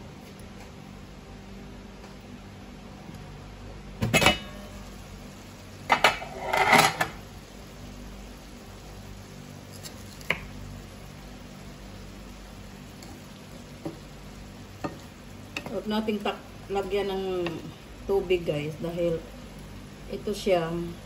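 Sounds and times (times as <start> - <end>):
metal pan lid clanking: 4.0 - 4.7, 5.9 - 7.2.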